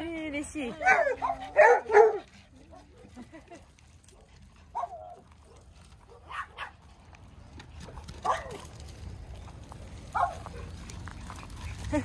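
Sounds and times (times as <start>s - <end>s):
small dogs barking: 0.8s - 3.0s, 4.1s - 6.8s, 8.2s - 8.7s, 10.1s - 10.8s.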